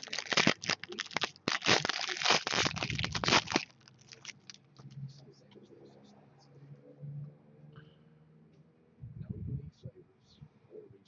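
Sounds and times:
foil wrapper crinkling: 0.0 - 4.6.

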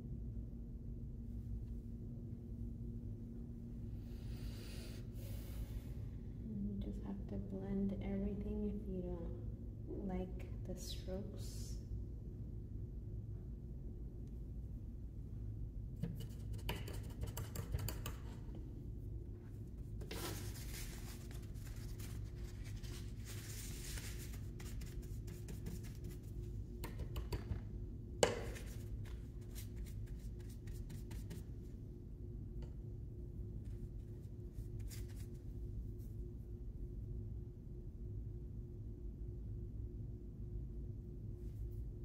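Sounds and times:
steady low hum: 0.0 - 42.0
paintbrush scratching on canvas: 20.0 - 26.4, 28.4 - 31.5
paper towel rubbing: 20.0 - 26.4.

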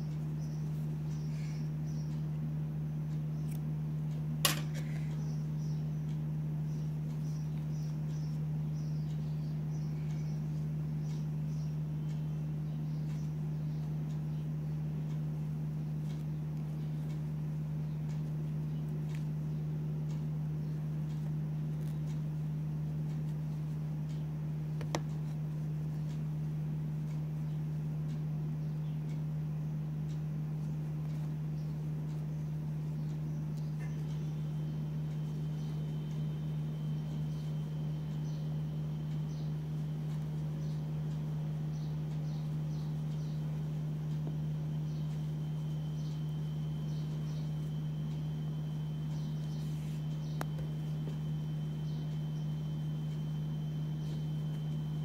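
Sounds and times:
low hum: 0.0 - 55.0
faint ticks: 16.0 - 25.4.

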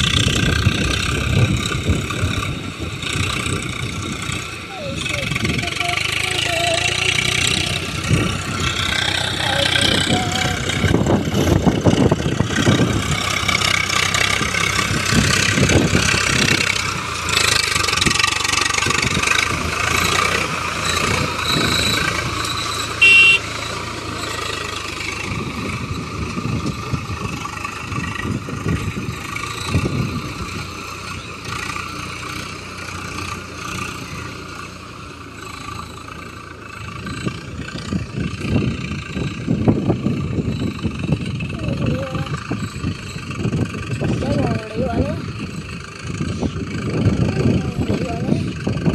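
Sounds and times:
tractor diesel engine under load: 0.0 - 48.9
loud high tone: 23.0 - 23.5.

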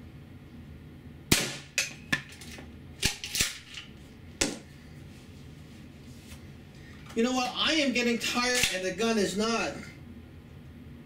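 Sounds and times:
airsoft shotgun firing: 1.3 - 1.8
rounds hitting target trap: 1.3 - 2.3.

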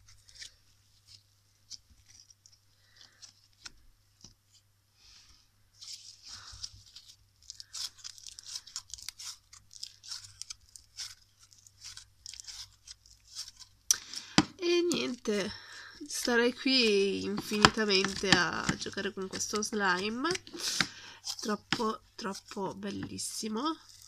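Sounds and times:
crunchy slime crackling and popping: 0.0 - 4.3, 5.9 - 24.0.

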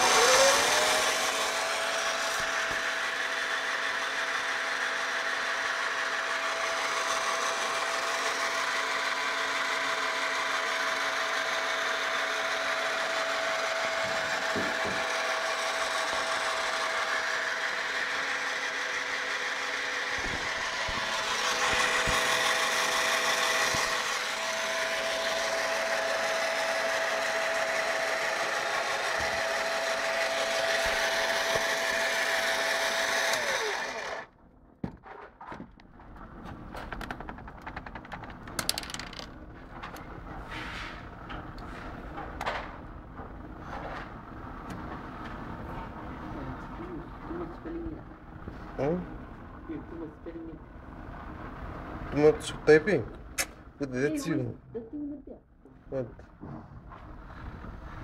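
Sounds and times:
drill motor whining: 0.0 - 34.4.

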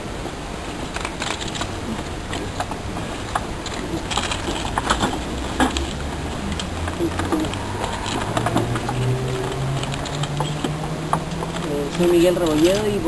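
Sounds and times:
steady low hum: 0.0 - 13.0
papers being shuffled: 3.5 - 10.8.

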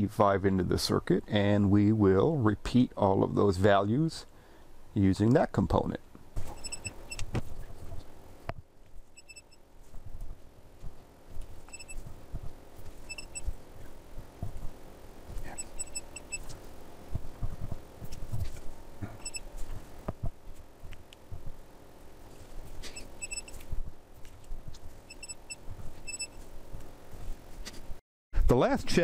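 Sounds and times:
short electronic beeps: 6.5 - 7.2, 9.2 - 9.6, 11.7 - 12.0, 13.1 - 13.5, 15.5 - 16.5, 19.2 - 19.5, 22.9 - 23.6, 25.1 - 26.4.

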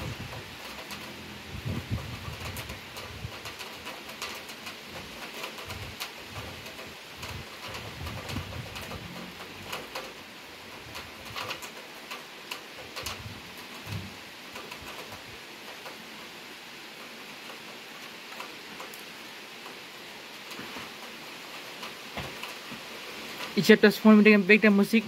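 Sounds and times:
heavy rain falling: 0.0 - 25.0
raindrops tapping nearby: 0.0 - 25.0
low muffled bumps: 13.0 - 14.2.

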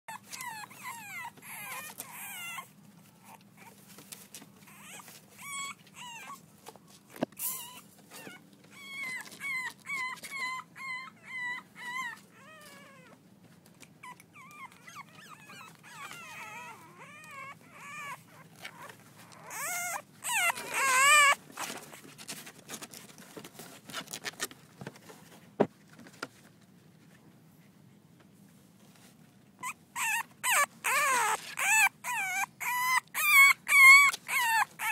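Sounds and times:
puppies whining: 0.1 - 6.7, 7.4 - 13.2, 13.9 - 22.1, 29.6 - 34.9.

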